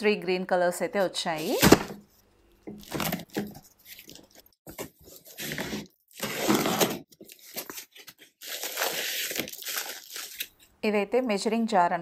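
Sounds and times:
packaging crinkling and rustling: 2.7 - 10.6.

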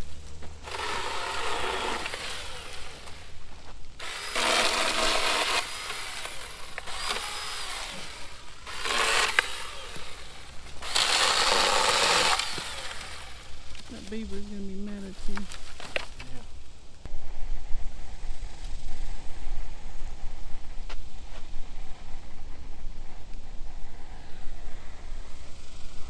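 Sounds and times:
cordless chainsaw cutting branches: 0.0 - 3.4, 4.0 - 16.4.

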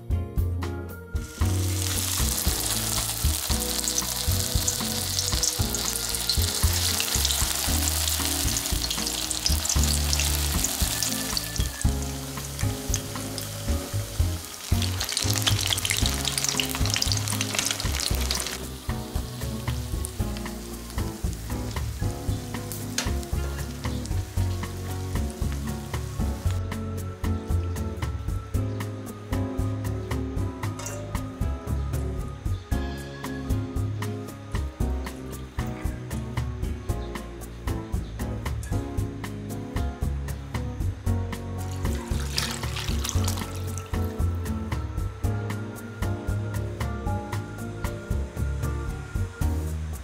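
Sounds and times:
food sizzling and crackling in oil: 1.2 - 26.6, 41.6 - 44.4.

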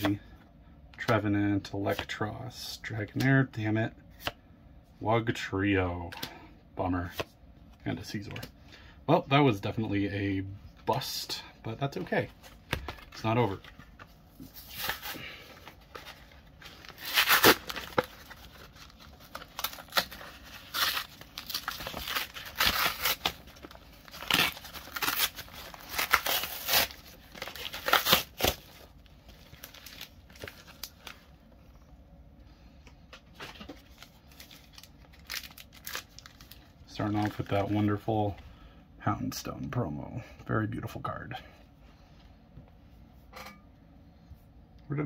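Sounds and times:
paper crinkling and tearing: 12.4 - 31.2, 33.4 - 38.0.

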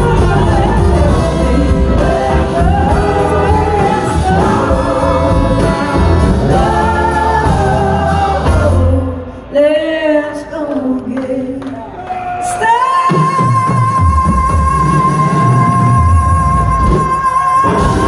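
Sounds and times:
live soul-blues band playing: 0.0 - 9.5, 13.1 - 18.0
backing singers: 0.0 - 18.0
woman singing lead vocal: 0.0 - 18.0.

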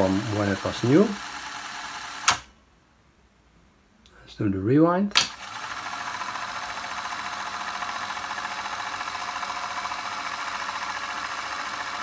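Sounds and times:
tape deck mechanism click: 2.2 - 2.5, 5.1 - 5.4.

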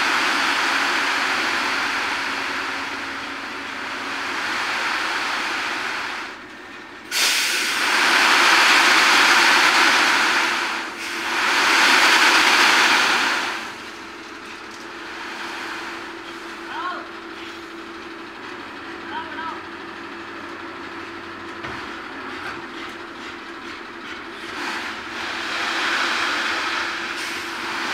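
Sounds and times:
truck engine running: 0.0 - 27.9
rushing hiss of sliding material: 7.1 - 13.6.

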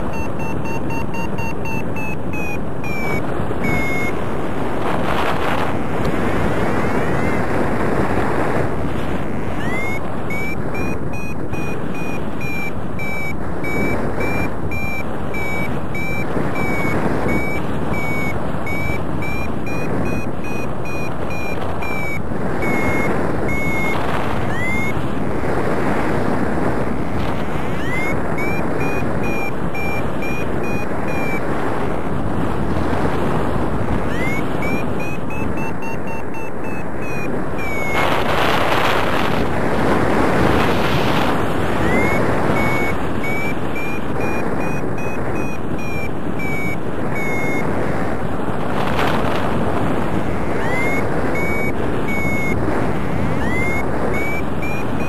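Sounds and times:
variometer beeping: 0.0 - 4.4, 6.0 - 7.6, 9.4 - 25.1, 27.2 - 31.7, 33.9 - 38.3, 41.0 - 47.8, 50.4 - 55.0
wind rushing over microphone: 0.0 - 55.0.

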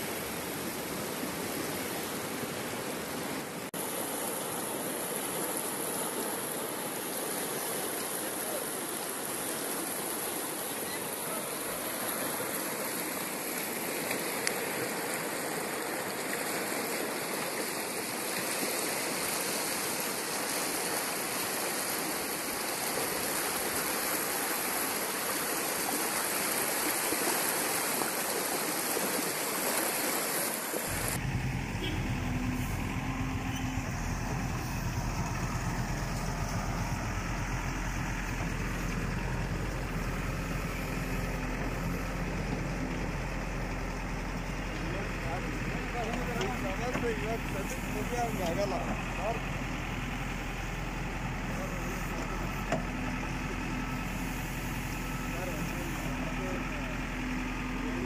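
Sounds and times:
floodwater rushing down a stream: 0.0 - 58.0
steady low hum: 30.9 - 58.0.

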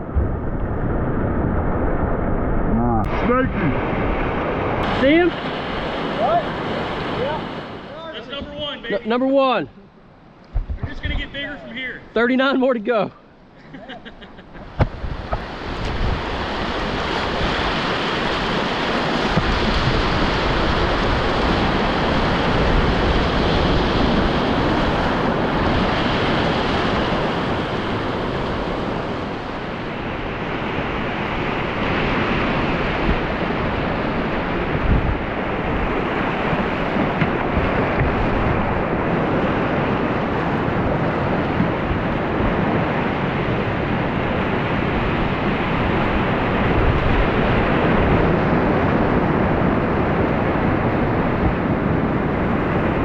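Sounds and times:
wind buffeting microphone: 0.0 - 8.8, 10.4 - 11.8, 14.5 - 53.0
whitewater rapids rushing: 3.0 - 9.4.

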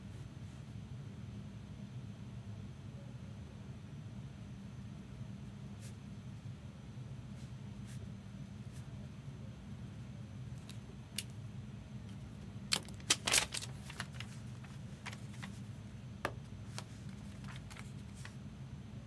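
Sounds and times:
cards clicking and rustling: 12.7 - 15.7, 16.3 - 18.4.

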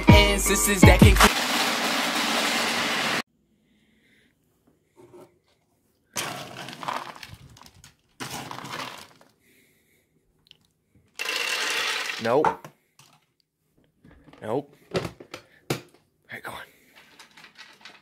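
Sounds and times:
kibble poured into plastic bin: 1.3 - 3.2, 6.2 - 9.3, 17.0 - 18.0
kibble poured into plastic bowl: 1.3 - 3.2, 6.2 - 9.3, 11.2 - 12.4, 17.0 - 18.0
plastic scoop digging kibble: 6.2 - 9.3.

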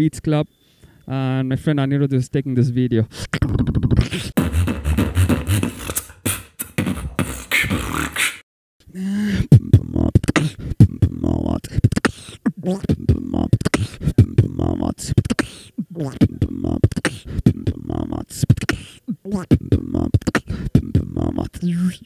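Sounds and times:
person beatboxing into microphone: 3.1 - 8.4, 9.0 - 22.0.

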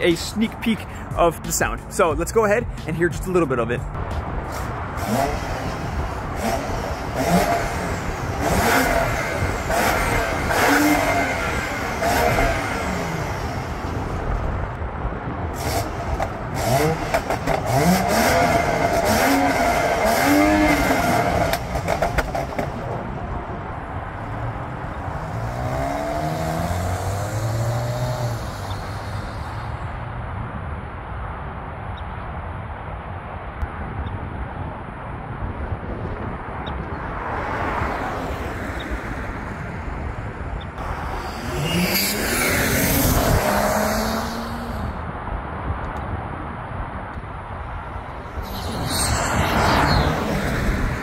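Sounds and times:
car engine revving: 4.0 - 14.8, 15.5 - 23.0, 23.7 - 29.9, 40.8 - 45.0, 48.1 - 51.0
exhaust pops and crackles: 15.6 - 23.1.

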